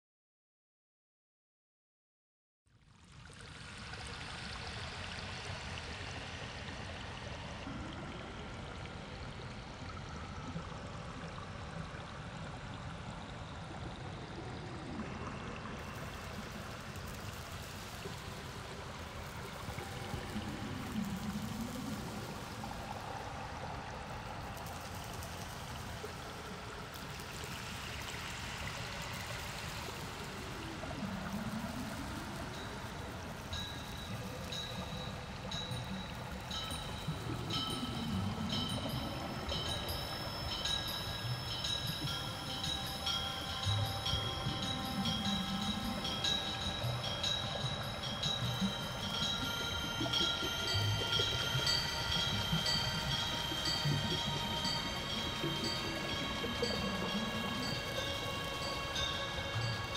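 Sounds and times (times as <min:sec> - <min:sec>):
river water flowing: 0:02.9 - 0:59.9
low gliding tone: 0:30.2 - 0:59.9.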